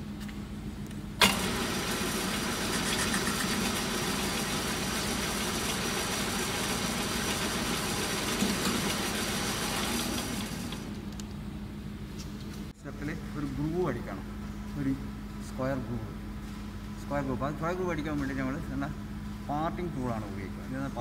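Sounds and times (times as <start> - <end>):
lathe gearing whirring: 1.2 - 11.2.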